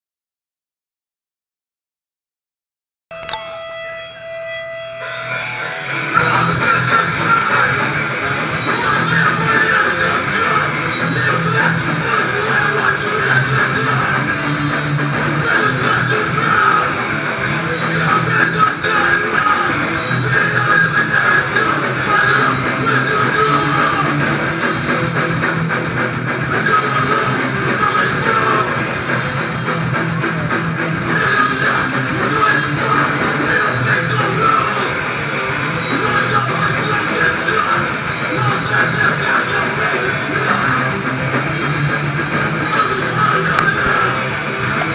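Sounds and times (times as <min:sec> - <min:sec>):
held guitar note: 0:03.1 - 0:06.9
drums: 0:03.1 - 0:44.9
electric guitar: 0:03.1 - 0:44.9
heavy rock band playing: 0:03.1 - 0:44.9.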